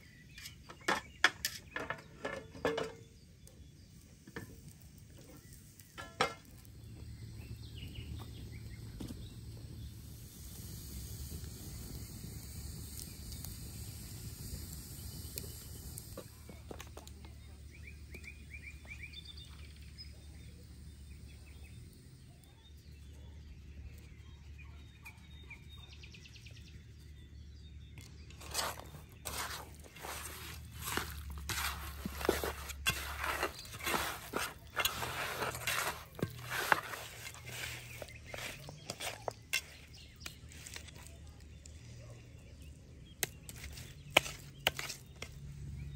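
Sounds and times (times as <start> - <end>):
birds chirping: 0.0 - 45.9
knocks and rustles in a metal tray: 0.3 - 3.2, 5.3 - 6.7, 28.3 - 40.9.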